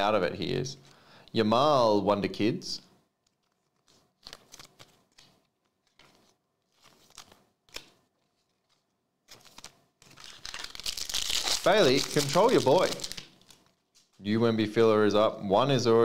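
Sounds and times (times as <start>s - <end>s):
trading cards flicking and rustling: 3.2s - 14.2s.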